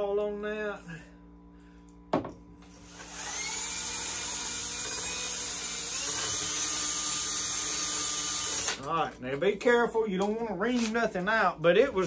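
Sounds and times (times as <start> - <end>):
electric drill running: 2.6 - 8.9.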